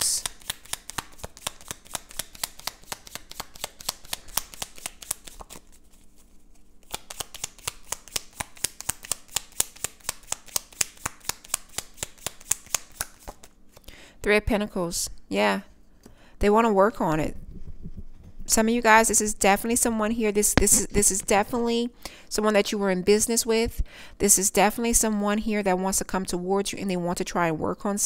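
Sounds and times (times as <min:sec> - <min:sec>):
cards being shuffled: 0:00.0 - 0:13.6.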